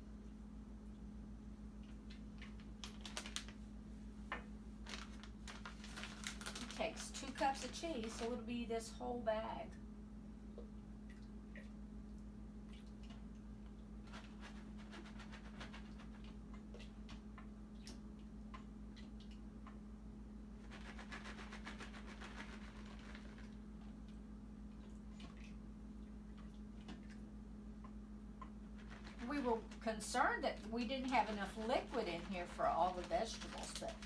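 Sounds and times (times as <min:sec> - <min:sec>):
steady low hum: 0:00.0 - 0:34.0
plastic bag crinkling: 0:02.4 - 0:03.6, 0:04.8 - 0:08.5, 0:20.6 - 0:23.5, 0:28.8 - 0:34.0.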